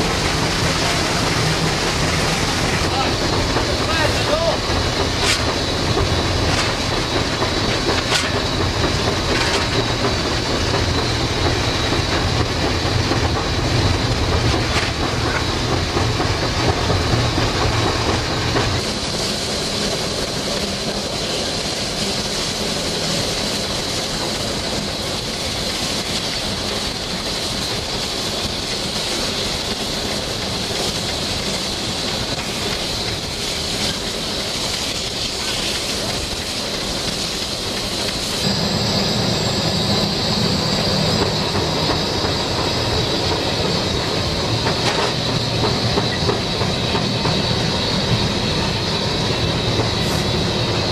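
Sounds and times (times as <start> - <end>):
steam hiss: 0.0 - 50.9
train wheels clacking on rails: 0.0 - 50.9.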